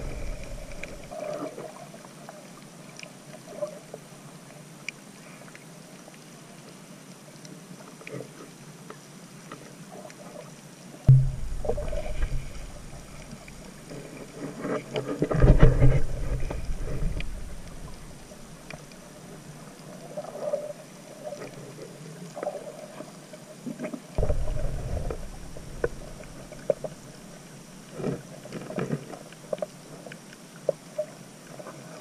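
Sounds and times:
muffled underwater water surging: 0.0 - 32.0
faint clicks: 11.6 - 19.9.

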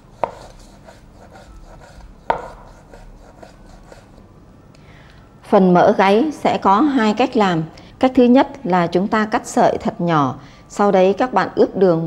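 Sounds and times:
cleaver slicing meat: 0.0 - 4.2
cleaver knocking on wooden board: 2.3 - 2.6.

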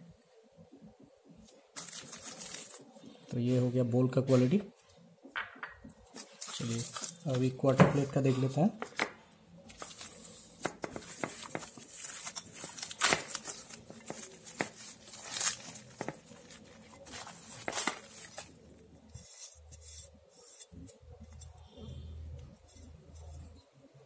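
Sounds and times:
plastic wrap crinkling: 1.4 - 4.6, 6.1 - 8.3, 9.6 - 20.9.

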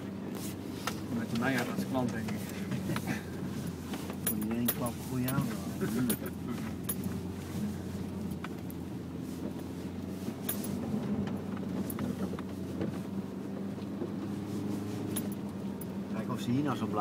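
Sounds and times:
car engine running: 0.0 - 17.0
knocks and rattles: 3.8 - 7.3.

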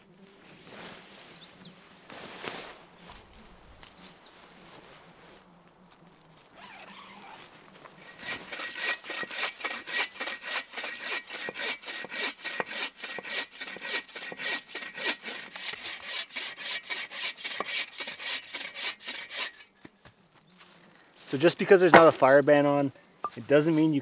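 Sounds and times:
soft rustling: 0.2 - 8.5
saw cutting a dry branch: 6.6 - 19.7.

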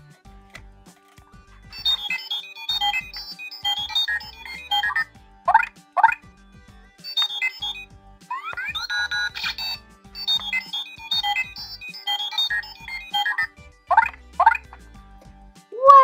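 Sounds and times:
electronic beeps and bleeps: 1.7 - 6.2, 7.0 - 14.7.

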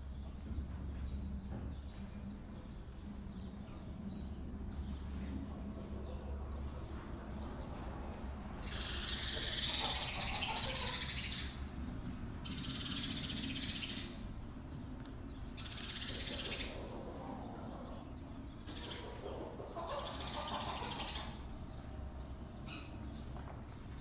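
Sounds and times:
chicks cheeping: 0.1 - 24.0
hen calling: 8.6 - 11.6, 18.7 - 21.5.

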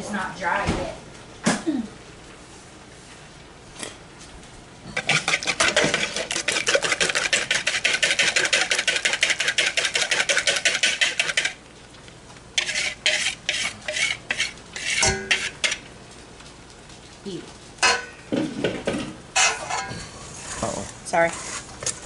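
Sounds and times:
whisk beating eggs in bowl: 5.0 - 11.6, 12.6 - 15.8.

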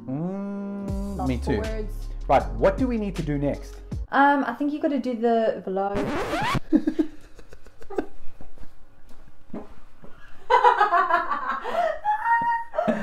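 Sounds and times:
man and woman laughing: 6.6 - 8.2, 10.5 - 13.0.

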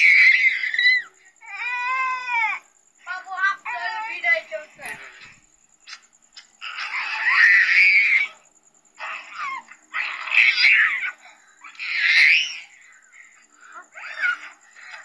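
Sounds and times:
toddler crying and screaming: 0.0 - 2.6, 6.7 - 8.4, 10.3 - 12.8, 13.8 - 15.0.

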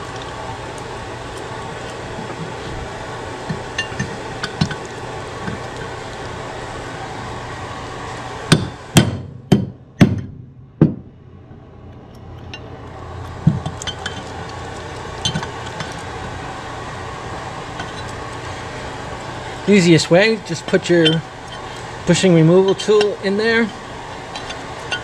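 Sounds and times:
hammer striking metal: 8.5 - 11.1
tools clinking against metal: 20.7 - 21.7, 22.6 - 23.2, 24.4 - 25.0.

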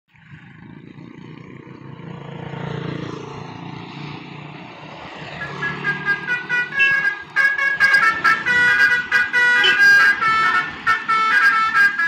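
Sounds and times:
motorcycles passing: 0.1 - 12.0
multi-tone musical horn: 5.4 - 12.0.

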